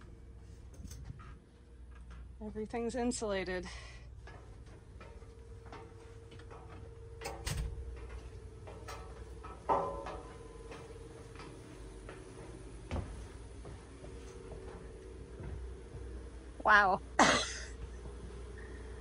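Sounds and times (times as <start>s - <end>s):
engine room machinery hum: 0.0s - 19.0s.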